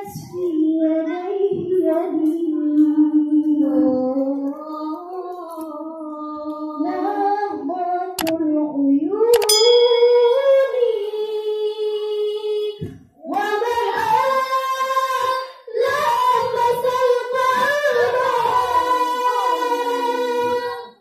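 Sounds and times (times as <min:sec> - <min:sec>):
girls singing into a microphone: 0:00.0 - 0:08.3, 0:10.3 - 0:21.0.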